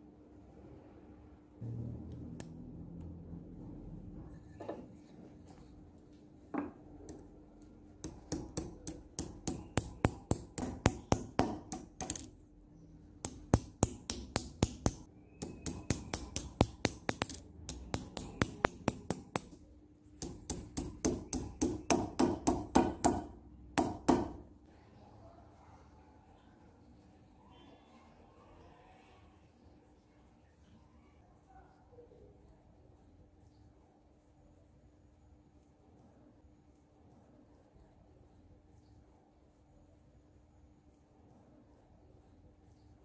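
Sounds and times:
hammer tapping metal strip: 8.0 - 12.3, 13.2 - 19.6, 20.2 - 24.4.

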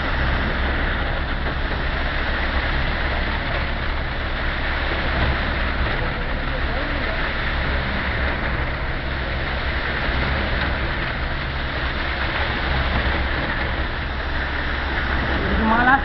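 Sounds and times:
construction machinery engine hum: 0.0 - 16.0.

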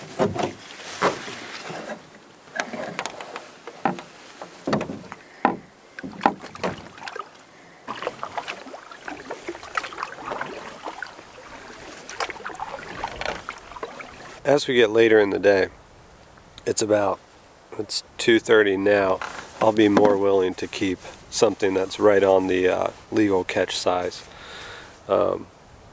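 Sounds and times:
water sounds: 2.5 - 14.4
knocks on canoe hull: 3.8 - 7.2.

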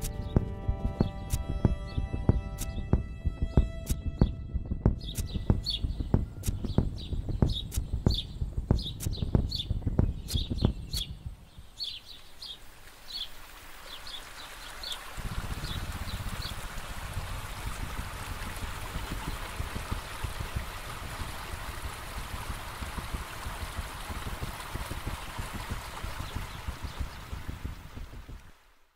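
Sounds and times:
thudding beat: 0.0 - 12.0, 15.2 - 28.6
steady rush like flowing water: 0.0 - 28.9
bird chirps: 4.9 - 13.3.

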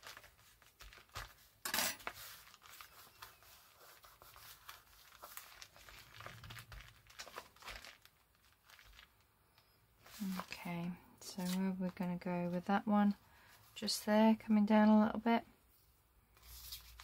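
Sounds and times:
paper and card rustling: 0.0 - 9.2, 10.0 - 12.7, 16.4 - 17.0.

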